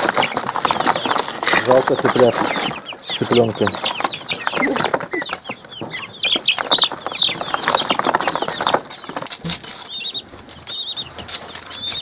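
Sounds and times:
chicks peeping: 0.0s - 12.0s
cardboard rustling and scraping: 6.7s - 12.0s.

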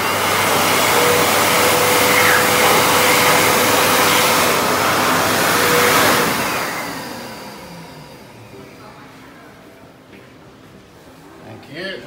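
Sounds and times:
hand dryer blowing air: 0.0s - 8.6s.

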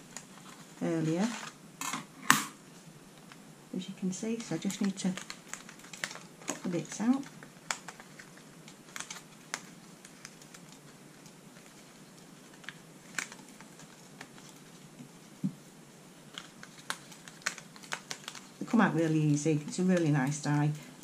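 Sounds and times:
paper pieces clicking and crackling: 4.3s - 14.9s, 16.2s - 20.7s.

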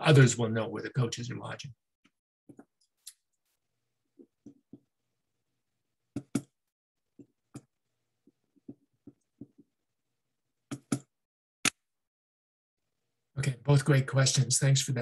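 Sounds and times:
keyboard and mouse clicks: 6.1s - 6.6s, 10.7s - 11.8s.

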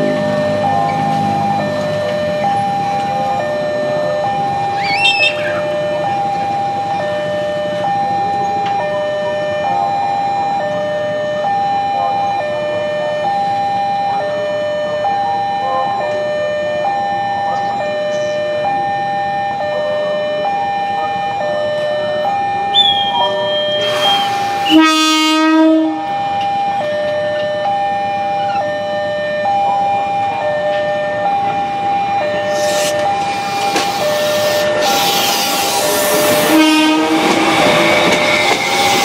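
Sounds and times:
level crossing two-tone alarm: 0.0s - 39.0s
train horn: 23.3s - 26.2s, 34.5s - 38.2s.

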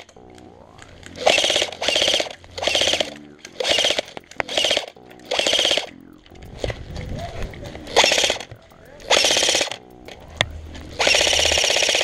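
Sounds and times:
airsoft rifle full-auto bursts: 1.2s - 5.9s, 7.9s - 9.8s, 10.9s - 12.0s.

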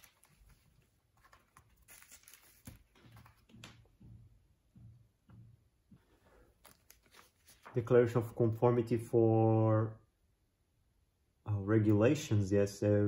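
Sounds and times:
paper rustling and tapping: 0.0s - 4.2s, 6.6s - 7.8s.

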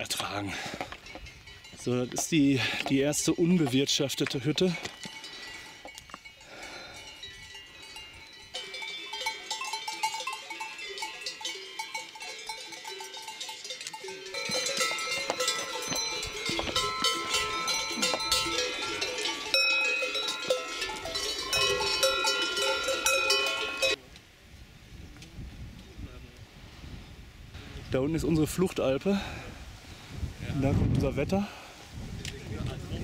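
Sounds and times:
cowbells clanking: 0.0s - 24.0s.

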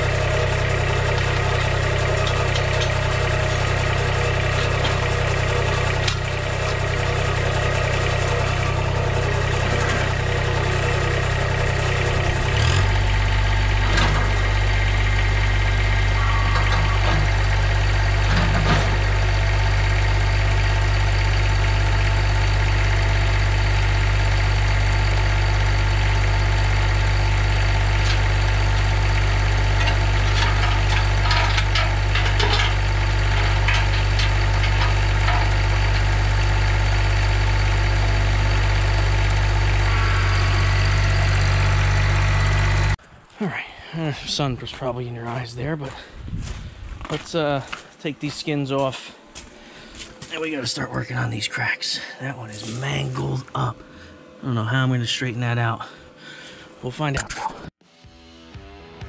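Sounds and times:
tractor diesel engine idling: 0.0s - 57.1s.

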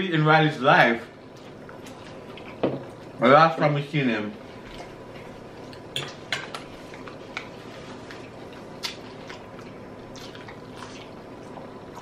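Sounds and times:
low room hiss: 0.0s - 12.0s
chewing and lip smacks: 6.8s - 12.0s.

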